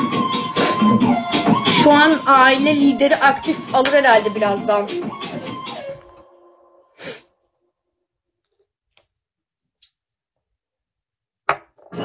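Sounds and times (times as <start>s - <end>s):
short hiss: 7.0s - 7.2s.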